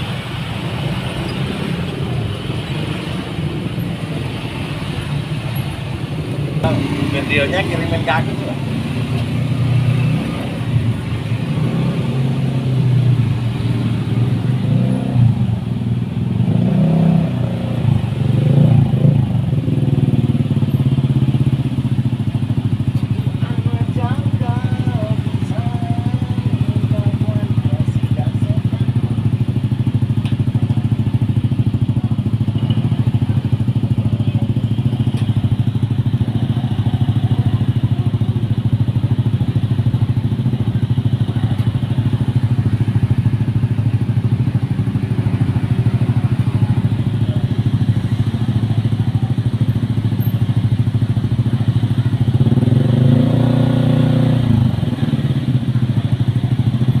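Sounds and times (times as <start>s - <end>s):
vehicle passing: 0.0s - 15.3s.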